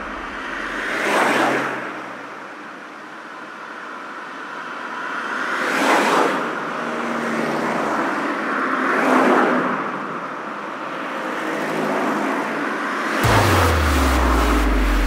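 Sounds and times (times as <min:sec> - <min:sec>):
vehicles passing: 0:00.0 - 0:01.8
highway road noise: 0:00.0 - 0:15.0.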